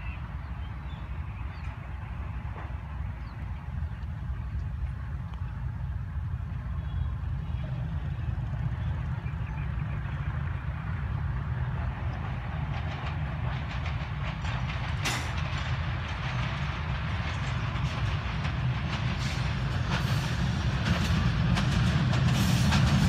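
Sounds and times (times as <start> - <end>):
locomotive engine rumble: 0.0 - 23.0
wheel clatter over rail joints: 11.8 - 23.0.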